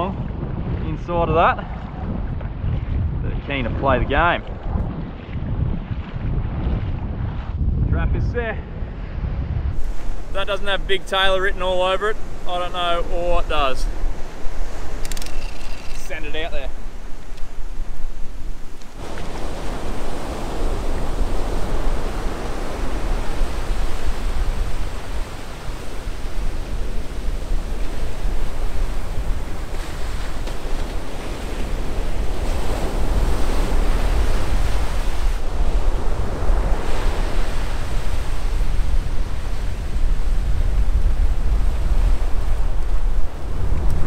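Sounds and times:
wind rumbling on microphone: 0:00.0 - 0:44.0
ocean surf breaking: 0:09.8 - 0:44.0.

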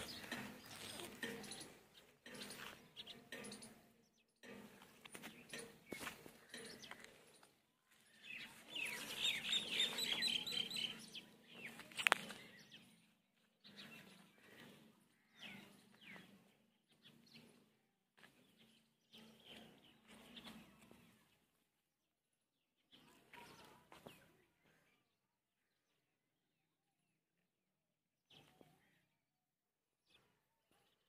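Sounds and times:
birds chirping: 0:00.0 - 0:21.6.

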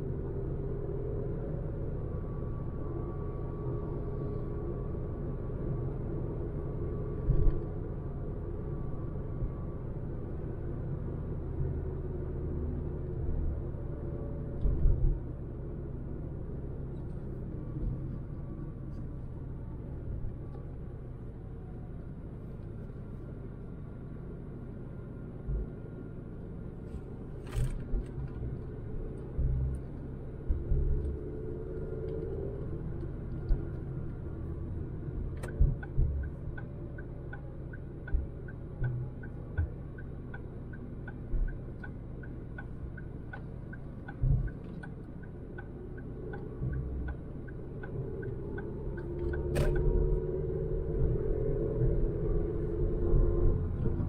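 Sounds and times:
car road and engine rumble: 0:00.0 - 0:54.0
light ticking: 0:35.4 - 0:49.9.

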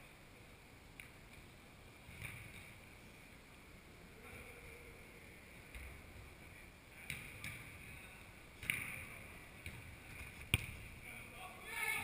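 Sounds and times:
steady hall hiss: 0:00.0 - 0:12.0
football kicked on artificial turf: 0:09.6 - 0:10.8.

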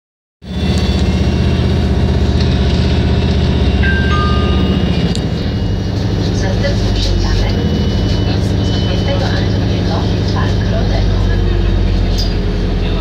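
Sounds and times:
bus engine droning: 0:00.4 - 0:13.0
two-note electronic chime: 0:03.6 - 0:06.4.

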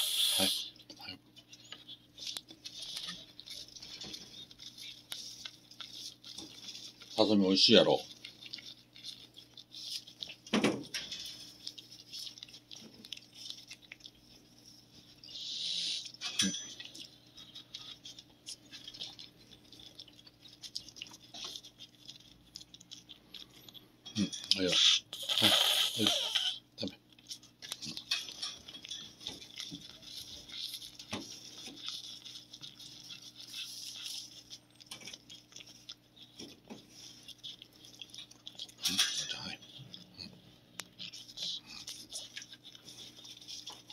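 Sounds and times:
cat chewing: 0:00.4 - 0:43.9.

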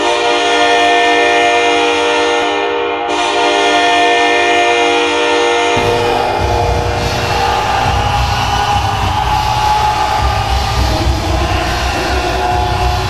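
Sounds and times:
goal horn multi-tone chord: 0:00.0 - 0:09.4
bass-heavy song: 0:05.8 - 0:13.0.

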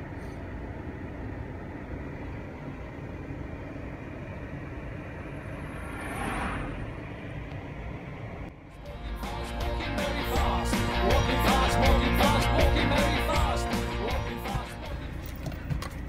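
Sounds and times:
whooshing swell: 0:05.2 - 0:09.4.

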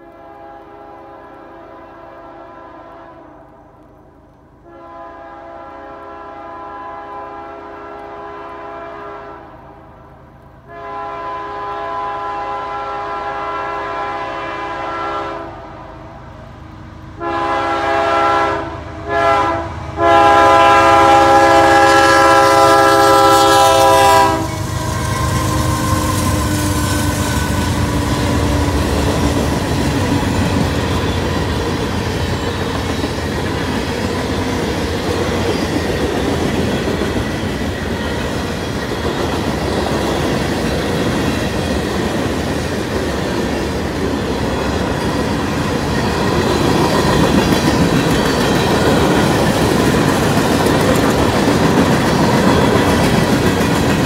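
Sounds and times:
train horn blasts: 0:00.0 - 0:03.6, 0:04.6 - 0:09.9, 0:10.6 - 0:16.0, 0:17.2 - 0:31.6
train rumbling: 0:00.0 - 0:54.0
wheels clacking on rails: 0:21.2 - 0:54.0.

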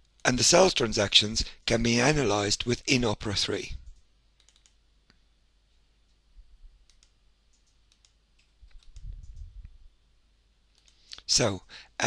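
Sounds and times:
faint computer mouse clicks: 0:03.9 - 0:05.2, 0:06.9 - 0:09.5, 0:10.7 - 0:11.2.

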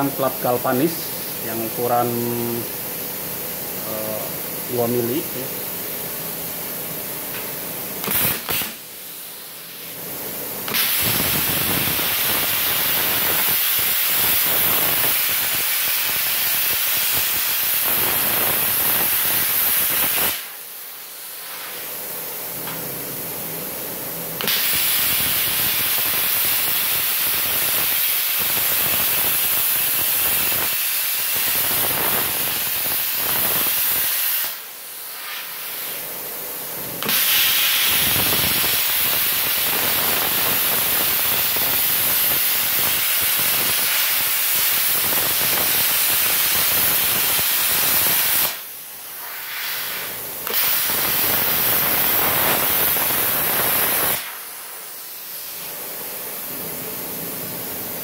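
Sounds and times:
plasma cutter hissing: 0:07.3 - 0:22.0, 0:24.4 - 0:36.1, 0:37.0 - 0:55.8.

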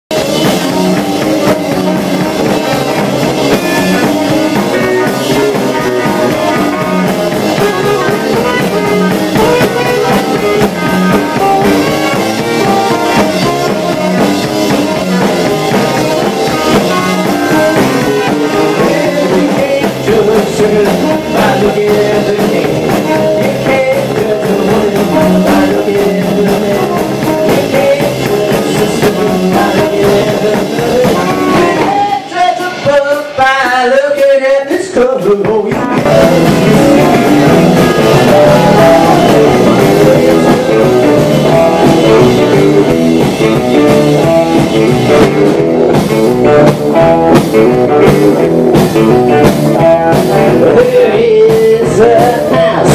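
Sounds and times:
electric guitar: 0:00.0 - 0:52.9
drum kit beat: 0:00.1 - 0:52.9
live band playing amplified music: 0:00.1 - 0:52.9.

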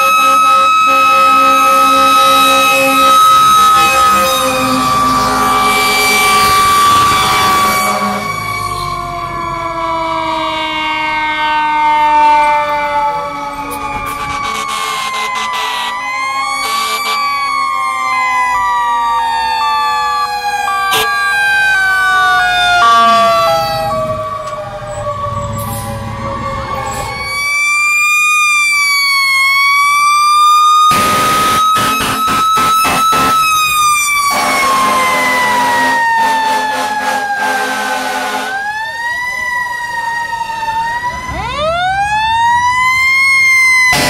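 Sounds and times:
air horn blasts: 0:00.0 - 0:06.7, 0:07.3 - 0:08.4, 0:13.7 - 0:16.0, 0:16.6 - 0:17.3, 0:30.9 - 0:38.7
fire engine sirens wailing: 0:00.0 - 0:44.0.

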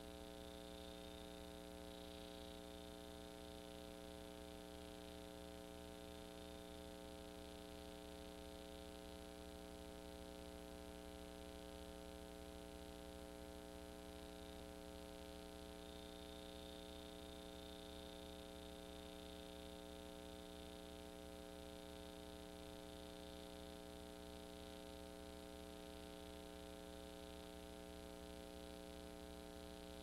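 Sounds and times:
faint high whine: 0:00.0 - 0:04.0, 0:11.3 - 0:20.6
low electrical hum: 0:00.0 - 0:30.0.

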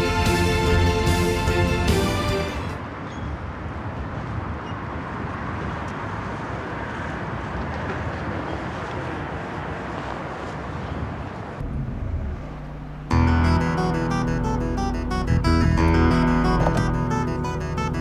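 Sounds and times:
street traffic rushing: 0:00.0 - 0:18.0
hum inside a moving car: 0:11.3 - 0:13.4.

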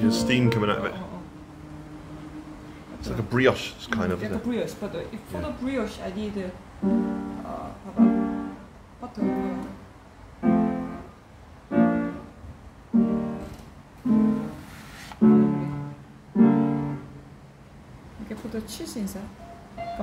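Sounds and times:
slow piano chords: 0:00.0 - 0:04.5, 0:06.7 - 0:14.6, 0:15.2 - 0:18.1, 0:19.4 - 0:20.0.

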